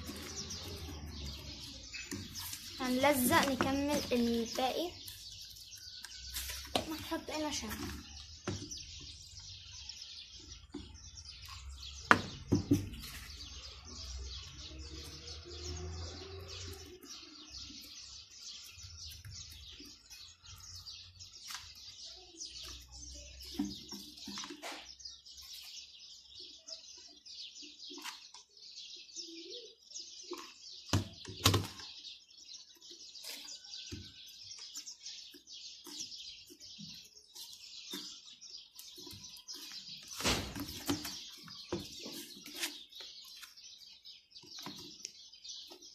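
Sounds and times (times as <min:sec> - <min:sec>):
small birds chirping: 0:00.0 - 0:45.9.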